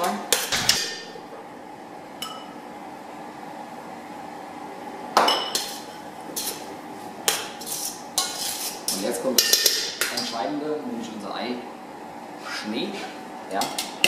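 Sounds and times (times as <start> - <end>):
metal bowls and utensils clanking: 7.3 - 10.4.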